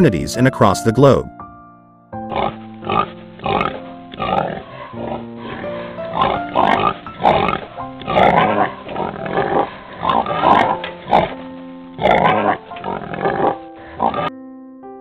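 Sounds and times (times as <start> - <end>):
background music with held notes: 0.0 - 15.0
pigs crying: 2.3 - 11.4, 12.0 - 14.3.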